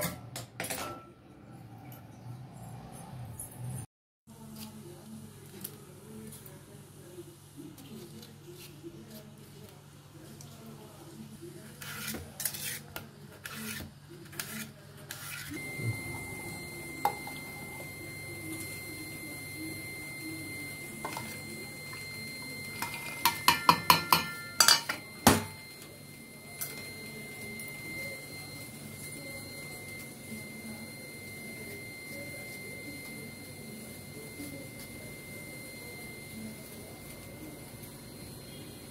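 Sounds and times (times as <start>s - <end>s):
faint steady high tone: 15.5s - 38.9s
steel dishes clinking: 22.8s - 25.5s.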